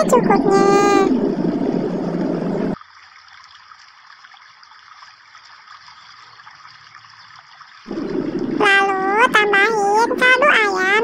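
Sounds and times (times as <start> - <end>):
loud noisy sound: 7.9 - 9.7.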